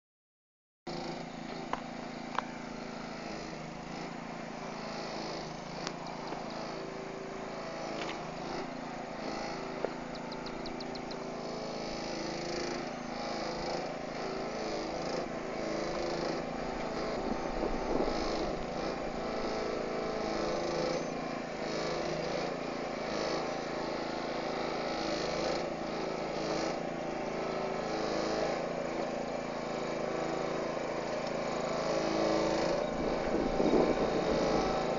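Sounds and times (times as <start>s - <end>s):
truck engine running: 0.9s - 34.9s.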